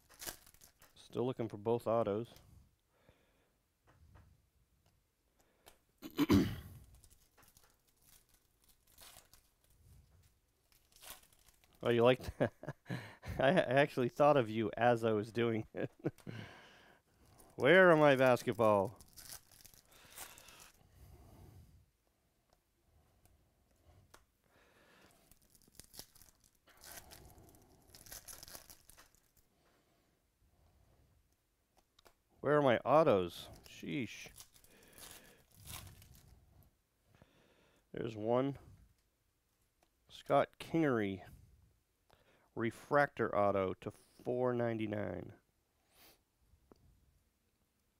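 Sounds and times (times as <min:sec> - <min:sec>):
foil wrapper tearing: 0:00.0 - 0:00.9, 0:06.8 - 0:09.7, 0:10.6 - 0:12.0, 0:17.4 - 0:20.8, 0:25.2 - 0:29.4, 0:33.6 - 0:36.3
foil crinkling: 0:00.0 - 0:01.0, 0:06.8 - 0:12.1, 0:17.2 - 0:20.8, 0:25.0 - 0:29.5, 0:33.5 - 0:36.3.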